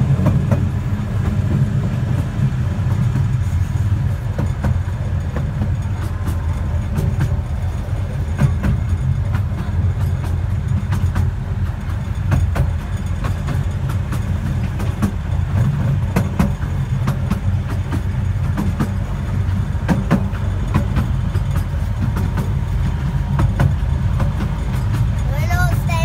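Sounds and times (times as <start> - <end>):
miniature train rumbling on track: 0.0 - 26.0
wheels clicking and knocking: 0.0 - 26.0.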